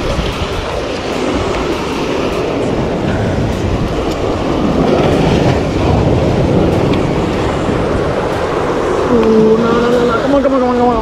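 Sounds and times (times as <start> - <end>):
surf washing over rocks: 0.0 - 11.0
person holding drawn-out sound: 9.1 - 10.2.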